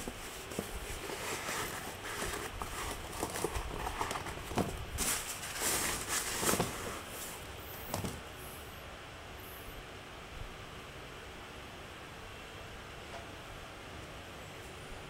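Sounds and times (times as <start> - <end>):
sneaker rustling: 0.0 - 8.2.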